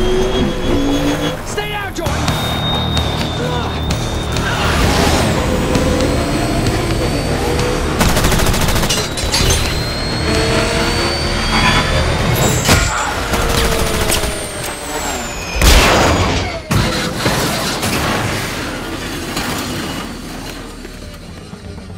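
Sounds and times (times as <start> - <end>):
jet-bike engine whining: 0.0 - 17.8, 18.7 - 21.9
heavy vehicle rumble: 0.0 - 21.9
rapid gunfire: 8.0 - 9.2
loud crash: 11.0 - 20.4.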